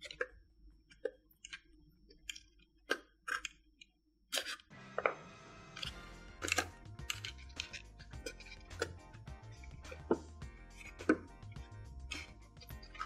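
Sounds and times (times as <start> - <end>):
background music: 4.7 - 13.0.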